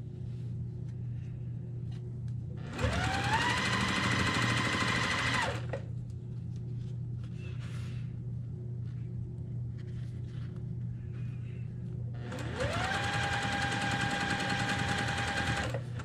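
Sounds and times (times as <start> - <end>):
electric sewing machine stitching: 2.7 - 5.7, 12.2 - 15.9.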